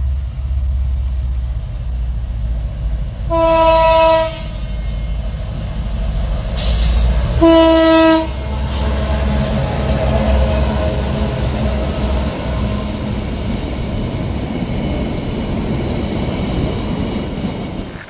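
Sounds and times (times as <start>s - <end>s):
train rumbling past: 0.0s - 18.0s
train horn blasts: 3.3s - 5.2s, 7.3s - 11.0s.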